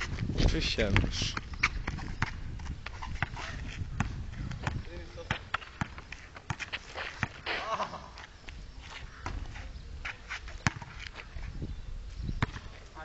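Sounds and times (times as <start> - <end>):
basketball bouncing on concrete: 0.0 - 7.7, 9.2 - 9.6, 10.6 - 11.1, 12.4 - 12.7.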